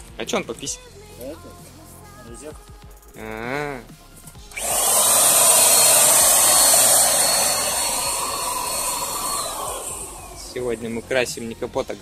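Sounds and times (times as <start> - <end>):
paint spray gun hissing: 4.5 - 11.0.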